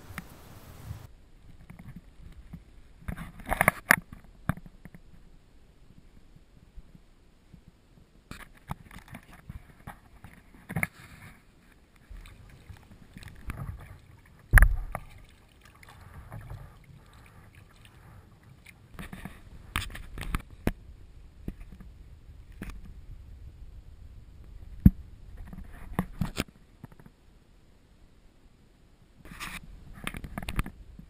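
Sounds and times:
paddle splashing in water: 12.0s - 20.3s.

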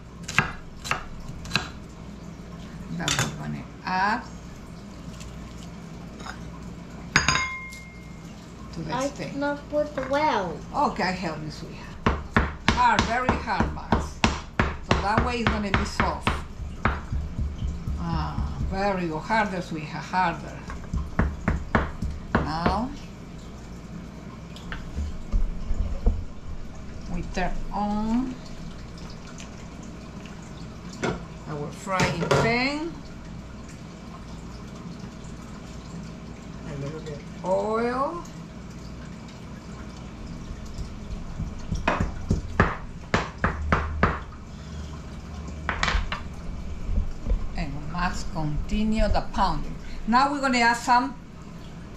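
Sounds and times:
low steady hum: 0.0s - 51.9s
meat mallet pounding on board: 12.0s - 19.2s, 20.8s - 22.9s, 40.8s - 44.3s
dull low thuds: 16.3s - 19.0s.

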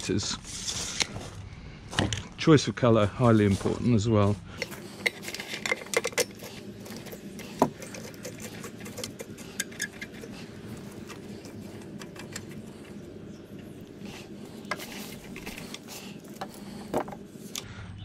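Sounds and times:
regulator hoses clicking and rattling: 4.6s - 17.7s.

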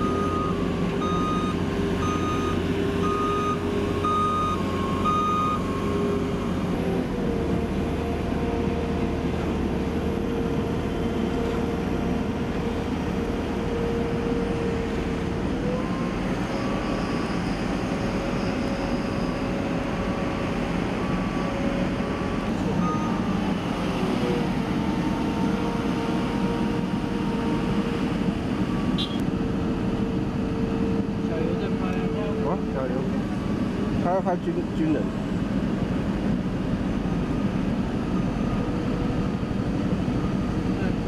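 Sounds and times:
reversing alarm beeping: 0.0s - 6.1s
backhoe engine running: 0.0s - 41.0s.

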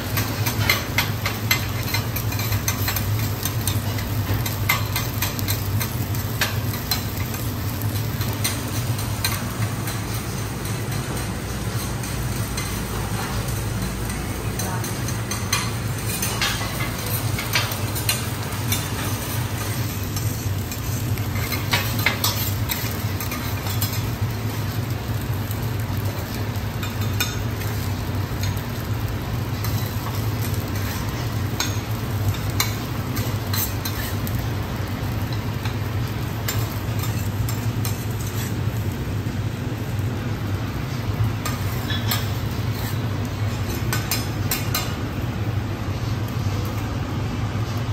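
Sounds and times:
rice sizzling: 0.0s - 47.9s
metal spatulas scraping griddle: 14.8s - 24.7s, 29.6s - 34.4s, 35.6s - 38.9s, 40.8s - 45.0s.

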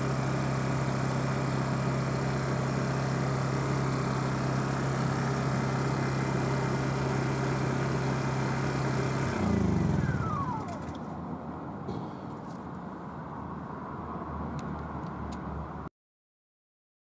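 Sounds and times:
generator running and winding down: 0.0s - 11.3s.

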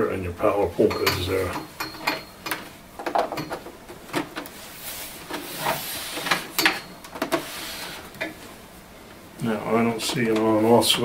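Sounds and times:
scraping and rustling: 3.9s - 8.6s.

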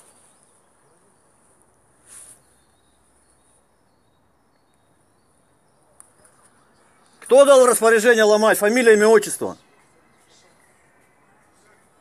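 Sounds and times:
soft rustle: 0.0s - 3.7s
faint high-pitched hiss: 0.0s - 3.9s.

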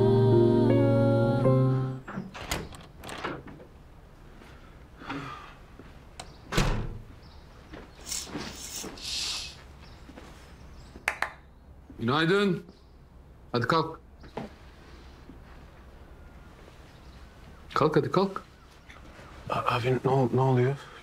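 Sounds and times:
background music: 0.0s - 2.0s
door opening and thudding shut: 2.0s - 3.7s, 6.5s - 7.1s.

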